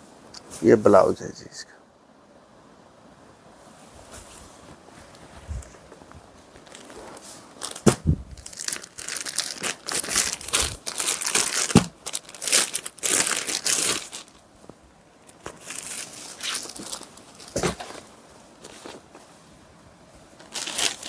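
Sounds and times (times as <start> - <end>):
plastic packaging crinkling: 6.5 - 14.4, 15.2 - 19.2, 20.4 - 21.0.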